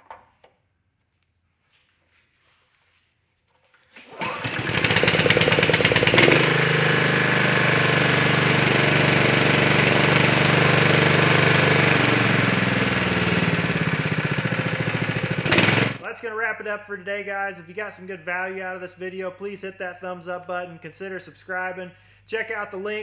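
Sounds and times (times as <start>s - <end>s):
small engine running: 4.0s - 16.0s.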